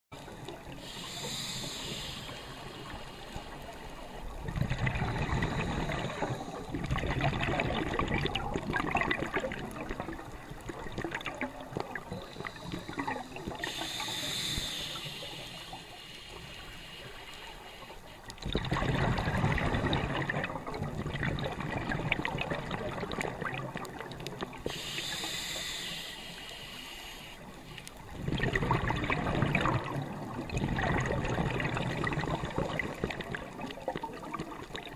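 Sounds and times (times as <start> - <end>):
bubbling exhaled air: 0.4 - 16.8, 18.4 - 26.4, 28.0 - 34.9
regulator hissing inhale: 0.7 - 4.4, 5.0 - 6.7, 12.1 - 18.4, 24.6 - 28.1.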